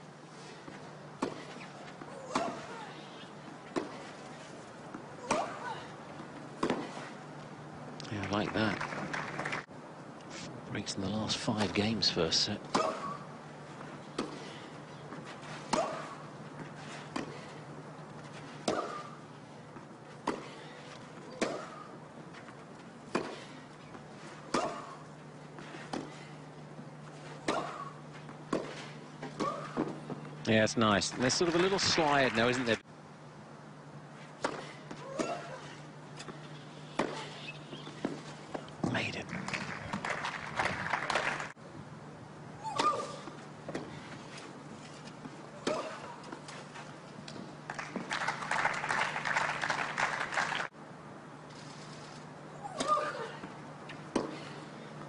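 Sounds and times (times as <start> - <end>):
steady low hum: 0.0 - 55.0
tennis racket hitting ball: 5.2 - 5.6, 18.6 - 19.2
crowd clapping: 8.0 - 9.7, 30.9 - 32.8, 39.2 - 41.6, 47.6 - 50.7
racket striking tennis ball: 18.6 - 19.2, 28.5 - 30.0.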